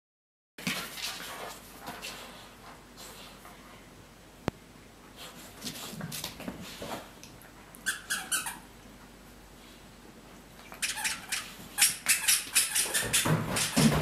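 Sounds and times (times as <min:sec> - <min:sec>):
puppy rustling and scuffling: 0:00.6 - 0:03.8, 0:05.0 - 0:08.2
squeaky toy squeaks: 0:07.8 - 0:08.6, 0:10.8 - 0:13.8.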